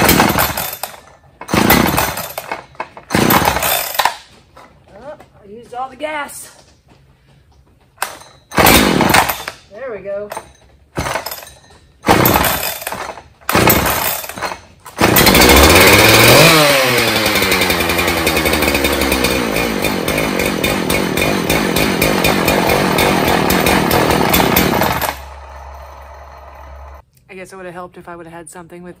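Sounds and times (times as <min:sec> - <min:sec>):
chainsaw pull-starting and running: 0:00.0 - 0:04.4, 0:12.1 - 0:27.0.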